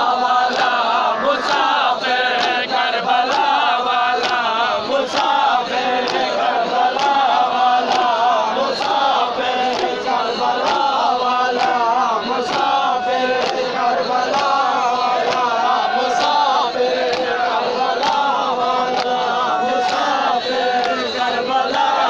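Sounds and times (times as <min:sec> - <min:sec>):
men chanting in unison: 0:00.0 - 0:22.0.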